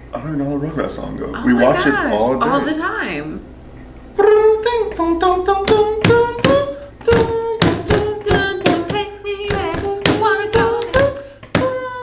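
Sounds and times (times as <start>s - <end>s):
woman singing wordless tune: 4.2s - 12.0s.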